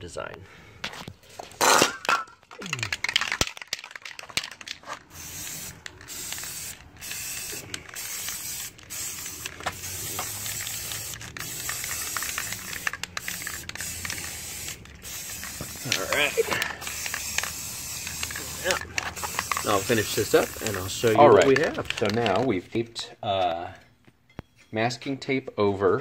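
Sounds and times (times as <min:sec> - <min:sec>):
spray paint can hissing: 0:03.1 - 0:22.4.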